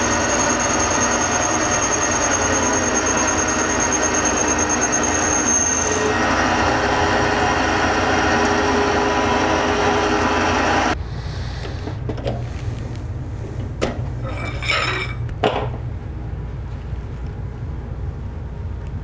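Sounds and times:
metal lathe whining: 0.0s - 11.0s.

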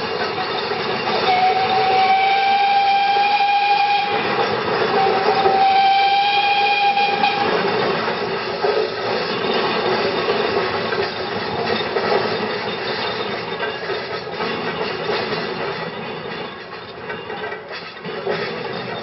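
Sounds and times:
steam roller running with hiss: 0.0s - 19.0s
steam whistle: 1.1s - 7.6s.

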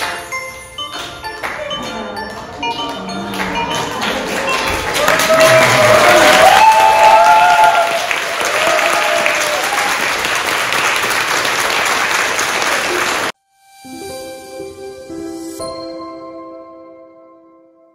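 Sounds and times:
soft instrumental music: 0.0s - 5.0s, 13.4s - 17.9s
congregation applauding: 2.9s - 13.3s.

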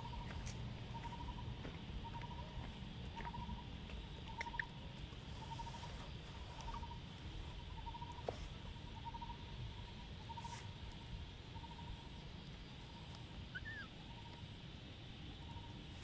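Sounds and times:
small animal trilling: 13.5s - 14.3s.

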